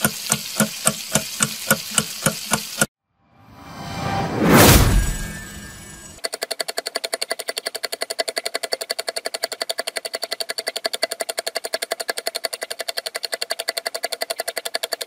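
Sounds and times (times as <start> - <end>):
rapid mechanical clicking: 0.0 - 2.9, 6.2 - 15.0.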